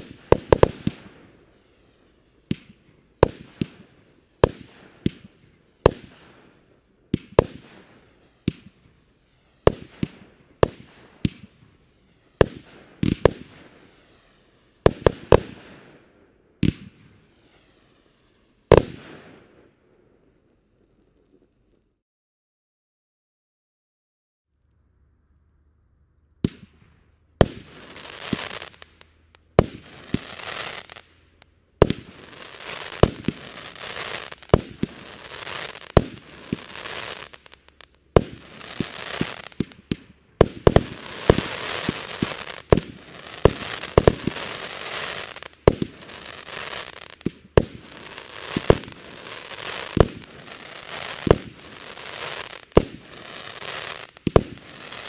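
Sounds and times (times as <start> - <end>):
firework crackling: 0.0 - 16.0, 16.6 - 19.6, 26.4 - 55.0
firework launch bangs: 31.8 - 55.0.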